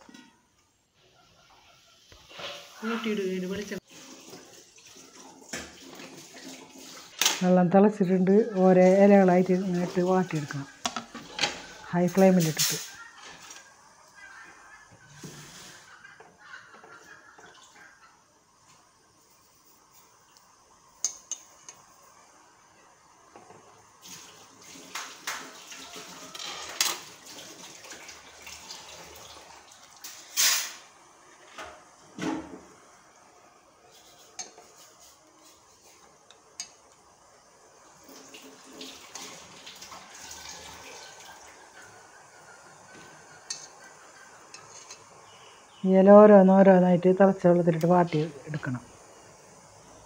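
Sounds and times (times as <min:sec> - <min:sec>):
boiling water bubbling: 0:30.9 - 0:50.0
metal utensil clinking on pot: 0:43.5 - 0:43.8, 0:44.5 - 0:45.1.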